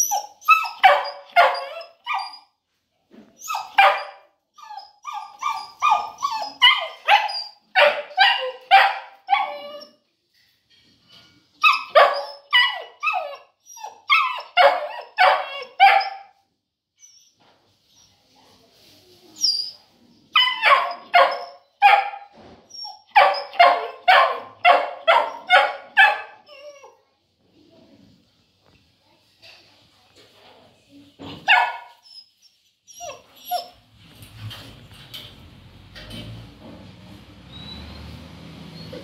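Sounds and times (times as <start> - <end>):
puppy barking: 0.0 - 2.5, 3.5 - 9.9, 11.6 - 16.4, 20.4 - 22.3, 23.1 - 26.8, 31.4 - 32.0
faint high squeaks: 0.0 - 2.6, 3.4 - 8.6, 9.2 - 10.0, 17.0 - 24.1, 31.8 - 35.2, 37.5 - 39.0.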